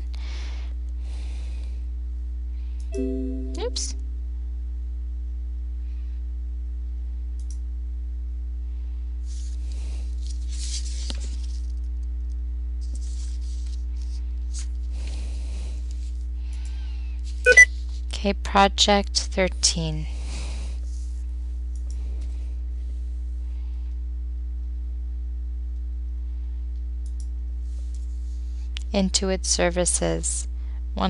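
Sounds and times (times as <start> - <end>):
faint steady tone: 2.9 - 4.0
low hum: 3.0 - 4.5.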